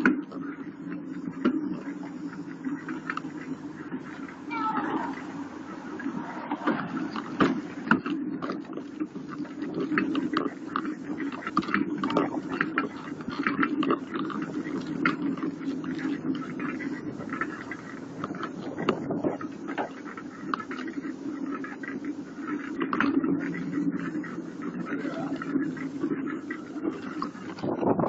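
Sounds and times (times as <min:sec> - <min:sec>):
bicycle tyres rumbling on asphalt: 0:00.0 - 0:28.0.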